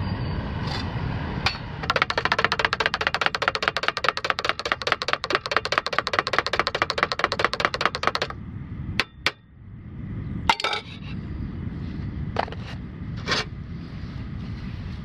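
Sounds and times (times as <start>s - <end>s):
rapid even ticking: 1.8s - 8.4s
low rumbling noise: 8.3s - 15.0s.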